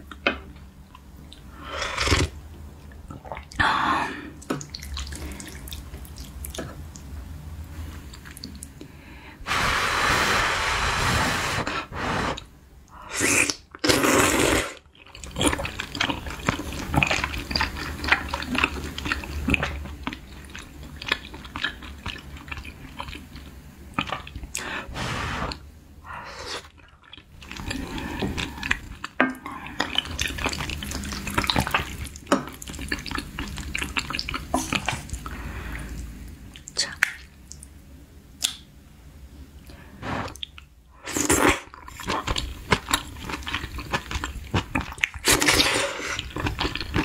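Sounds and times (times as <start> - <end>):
wet chewing and slurping: 13.2 - 25.6, 26.4 - 36.0, 40.0 - 47.0.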